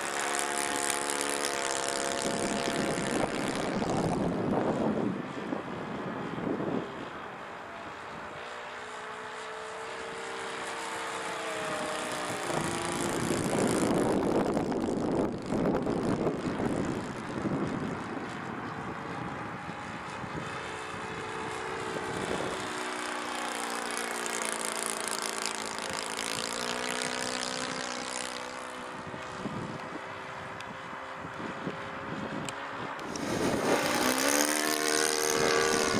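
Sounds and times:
model plane engine: 0.0 - 35.9
wind buffeting microphone: 1.8 - 7.2, 11.4 - 24.0, 28.9 - 35.9.

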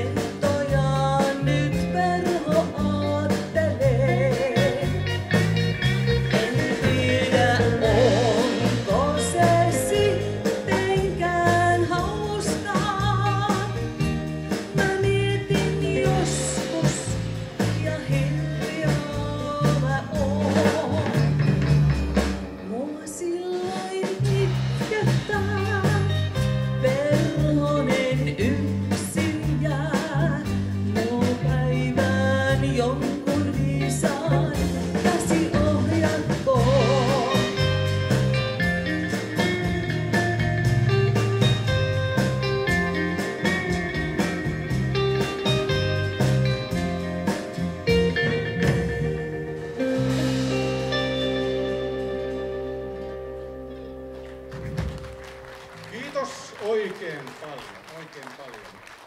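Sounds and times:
person singing: 0.0 - 5.4, 6.2 - 21.5, 22.6 - 38.0
bass guitar: 0.0 - 56.4
electric guitars: 0.0 - 57.0
drums: 0.0 - 59.0.

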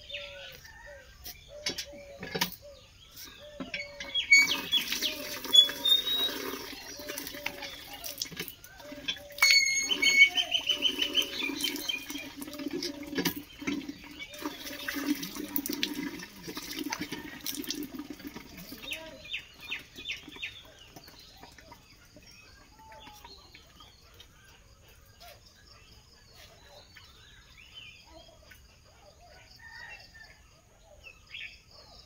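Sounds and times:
water splashing from hand pump: 3.6 - 21.8.

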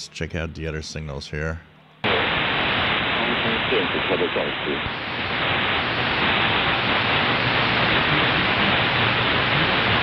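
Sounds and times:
radio static hiss: 2.0 - 10.0.

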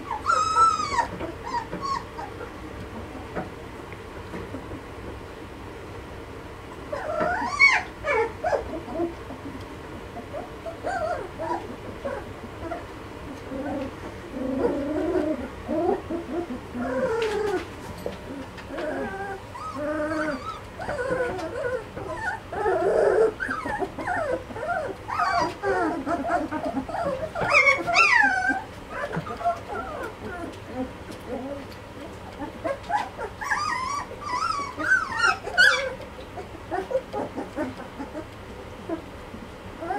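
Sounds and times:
puppy high cry: 0.0 - 2.5, 6.9 - 9.2, 10.2 - 12.9, 14.5 - 17.7, 18.4 - 39.0
puppies whining and whimpering: 0.0 - 3.4, 6.6 - 39.9.

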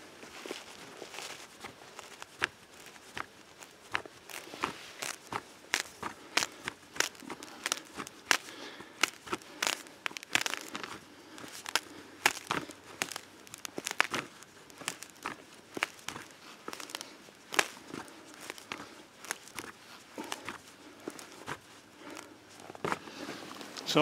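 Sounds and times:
screw crunching into ice: 3.6 - 21.6.

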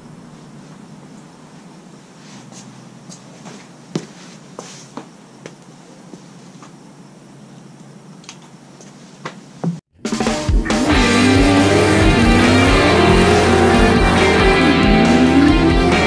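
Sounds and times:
footsteps on concrete: 2.5 - 6.8
steady low hum: 10.8 - 16.0.

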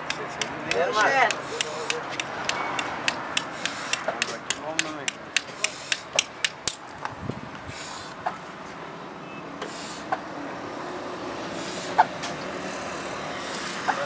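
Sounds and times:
street traffic noise: 0.0 - 14.0
short puffs of breath: 9.6 - 10.2.

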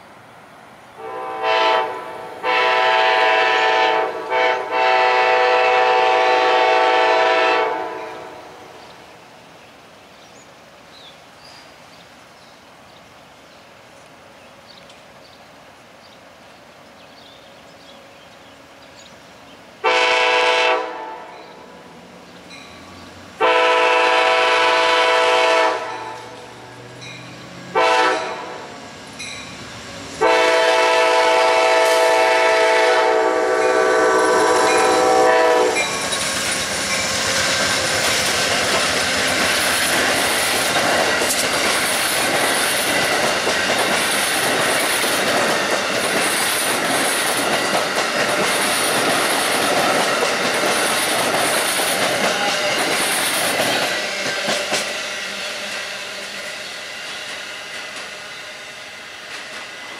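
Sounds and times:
locomotive horn blasts: 1.0 - 8.5, 19.8 - 21.4, 23.4 - 26.4, 27.7 - 28.7, 30.2 - 35.9
train wheels clattering on rails: 33.6 - 59.9.

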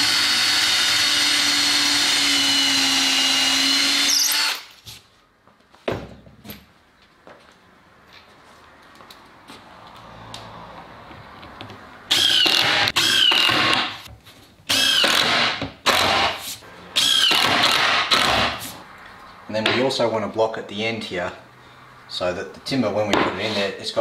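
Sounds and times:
impact driver driving screws: 12.1 - 14.0, 14.7 - 18.8.

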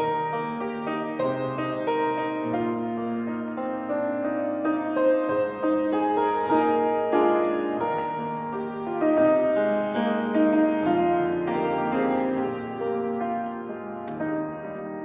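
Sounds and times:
grand piano melody: 0.0 - 15.0.

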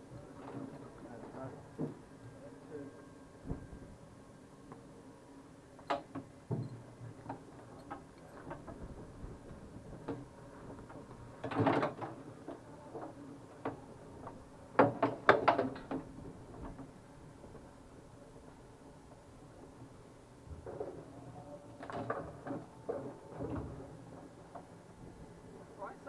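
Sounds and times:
clicks and knocks in a cockpit: 5.8 - 16.9.

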